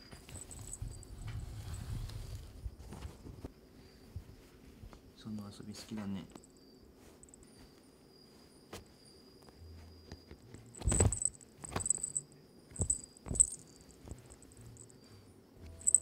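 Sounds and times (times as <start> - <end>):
animals scuffling and pattering: 5.7 - 12.2.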